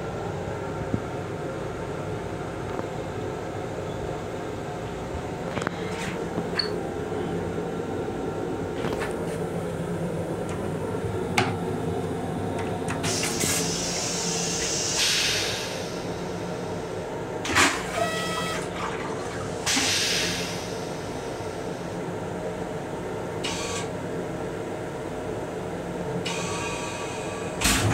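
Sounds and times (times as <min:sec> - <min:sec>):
train car hum: 0:00.0 - 0:27.9
toilet flush rushing hiss: 0:13.0 - 0:22.0, 0:26.2 - 0:27.9.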